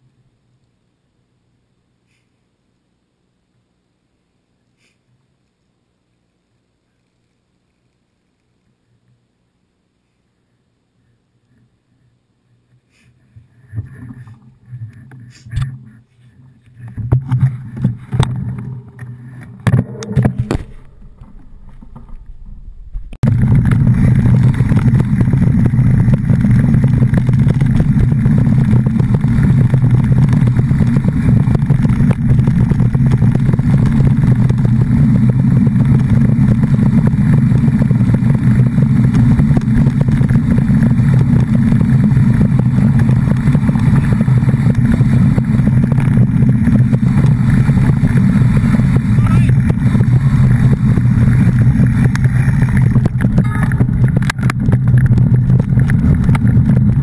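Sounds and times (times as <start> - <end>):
motor engine running: 12.9 - 57.0.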